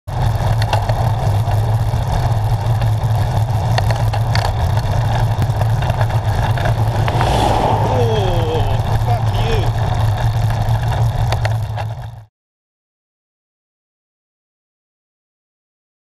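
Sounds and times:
road noise: 4.4s - 11.1s
wind buffeting microphone: 6.1s - 10.1s
hiss: 6.8s - 9.7s.

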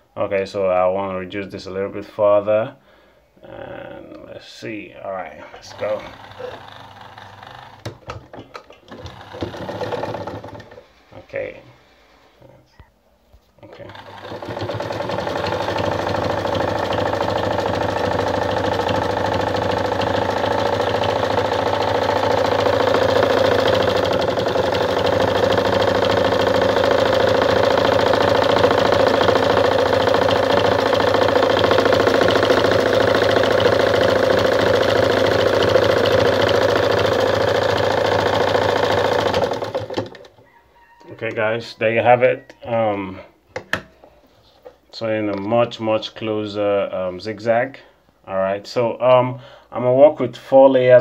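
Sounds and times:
sewing machine running: 5.6s - 11.0s, 13.7s - 40.4s.

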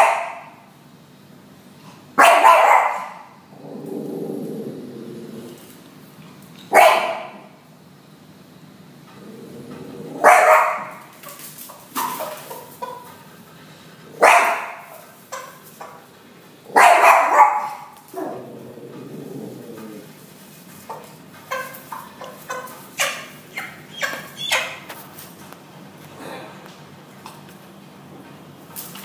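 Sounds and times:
small dog barking: 0.0s - 0.6s, 2.2s - 3.4s, 6.7s - 7.5s, 10.2s - 11.0s, 14.2s - 15.5s, 16.7s - 18.4s.

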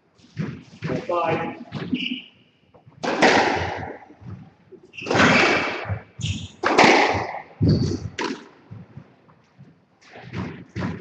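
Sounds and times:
squash ball cracking off rackets: 3.0s - 4.0s, 4.9s - 8.6s.

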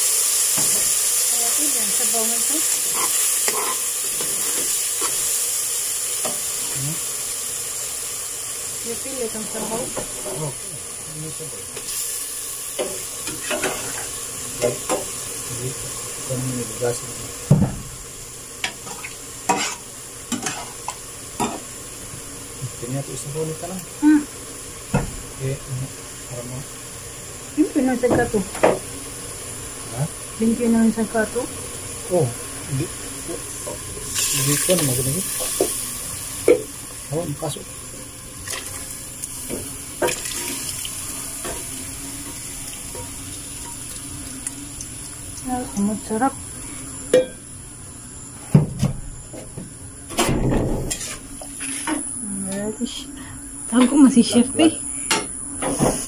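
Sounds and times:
skin sizzling in fat: 0.0s - 47.1s, 50.8s - 55.1s
liquid pouring into a pot: 34.0s - 35.1s, 39.9s - 45.5s.

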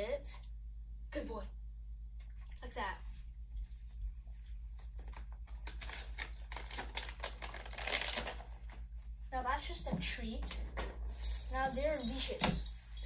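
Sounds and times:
plastic pouch crinkling: 4.9s - 8.9s.

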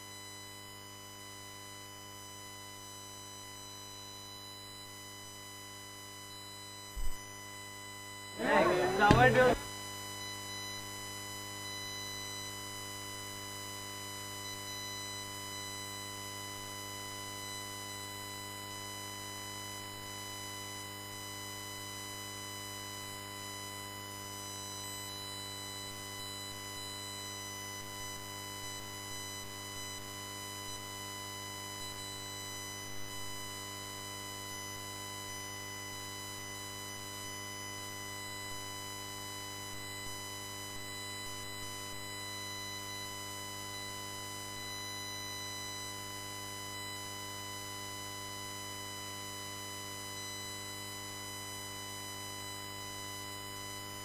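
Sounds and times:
electrical hum-buzz: 7.0s - 7.2s, 8.4s - 9.7s.

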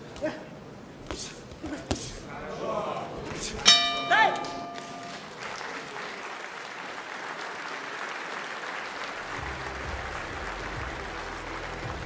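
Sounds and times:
crowd applauding: 4.4s - 12.0s.

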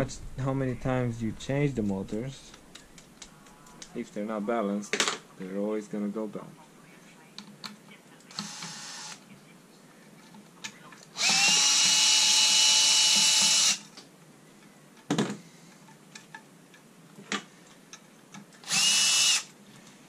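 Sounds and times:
cordless screwdriver motor whine: 8.3s - 9.2s, 11.2s - 13.8s, 18.6s - 19.5s.

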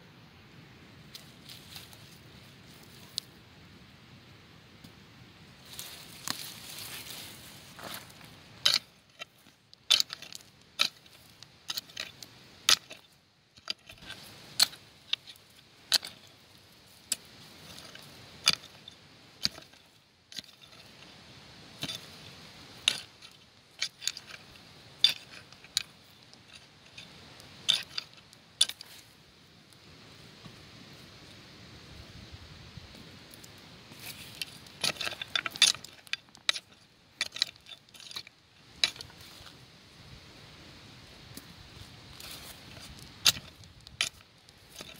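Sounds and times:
hoe striking stones: 7.7s - 29.0s, 33.9s - 39.6s, 42.1s - 44.9s.

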